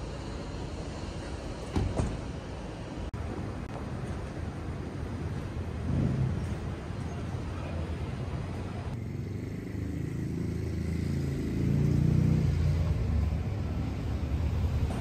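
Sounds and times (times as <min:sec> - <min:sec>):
vehicle passing close by: 0:08.9 - 0:15.0.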